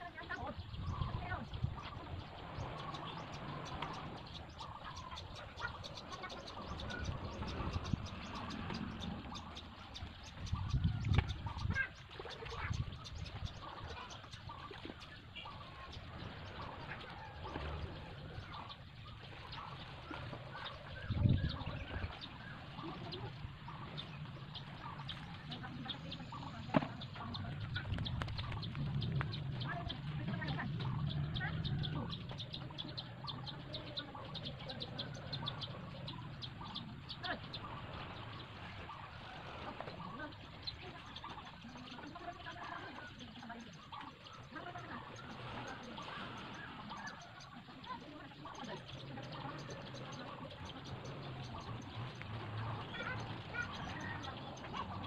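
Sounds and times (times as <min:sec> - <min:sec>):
small birds chirping: 0:00.0 - 0:55.0
low rumble: 0:23.4 - 0:33.6.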